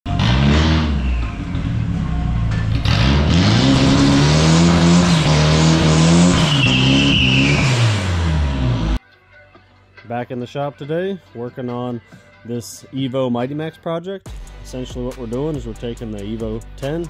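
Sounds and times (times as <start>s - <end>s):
pickup engine revving hard: 0.1s - 1.8s, 2.8s - 9.0s
tire squeal: 0.1s - 9.0s.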